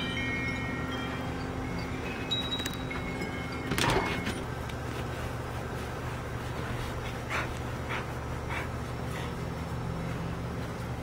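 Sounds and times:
steady low hum: 0.0s - 11.0s
small dog panting: 6.2s - 10.8s.

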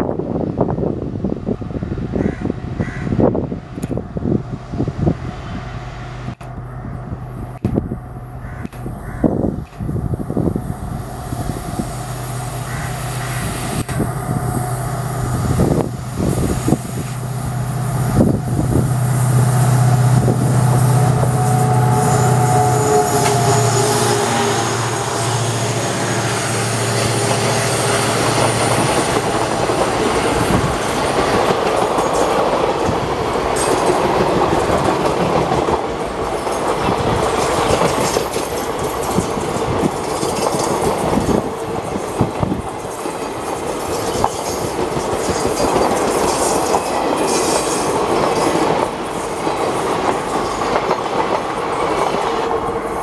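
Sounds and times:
diesel locomotive engine drone: 0.0s - 53.0s
train wheels clacking on rail joints: 7.5s - 10.5s, 20.2s - 24.2s, 25.7s - 53.0s.

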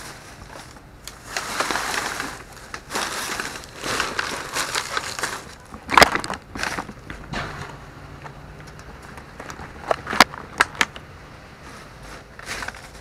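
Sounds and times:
plastic bags rustling: 0.0s - 7.3s, 11.6s - 13.0s.

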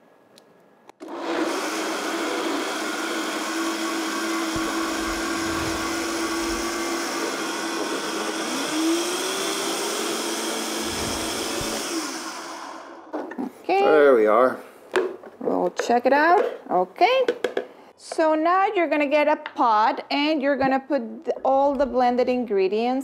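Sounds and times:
blender motor running: 1.0s - 13.2s.

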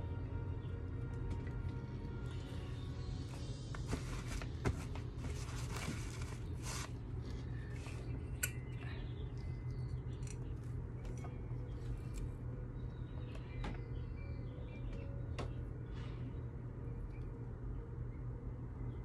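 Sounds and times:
steady low hum: 0.0s - 19.0s
canvas scraping and rustling: 3.8s - 7.8s.

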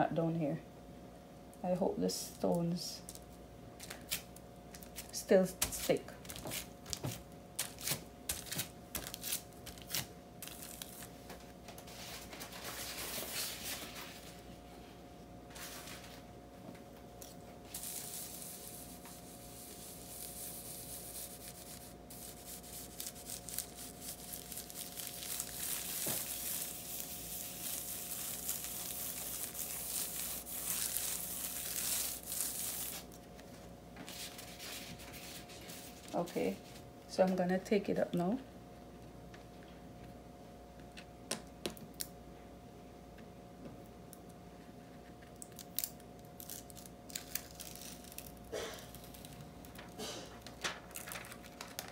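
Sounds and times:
plastic tape crinkling: 3.0s - 14.0s, 17.2s - 33.5s, 45.3s - 51.9s.

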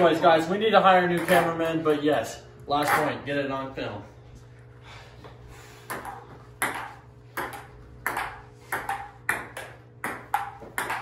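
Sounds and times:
table tennis ball knocking: 5.9s - 11.0s.

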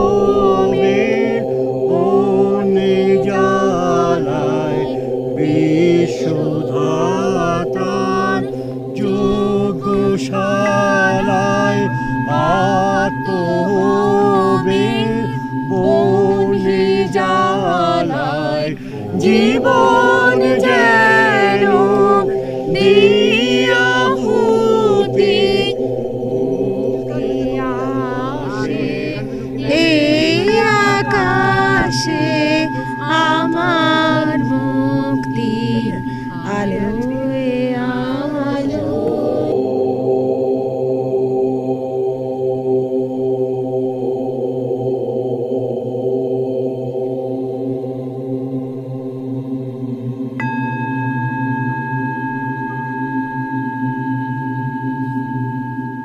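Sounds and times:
man singing slow melody: 0.0s - 39.7s
steady drone: 0.0s - 56.0s.

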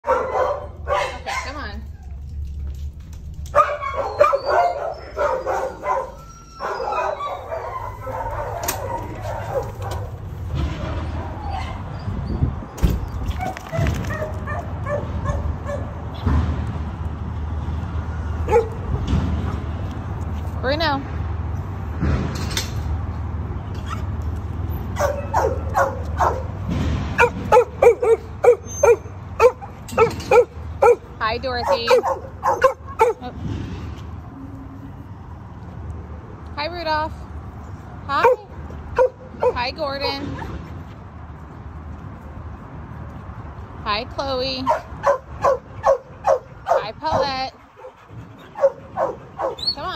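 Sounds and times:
dogs barking: 0.0s - 1.8s, 3.5s - 10.2s, 13.4s - 16.1s, 18.4s - 18.9s, 24.9s - 33.3s, 38.2s - 40.5s, 44.6s - 49.9s.

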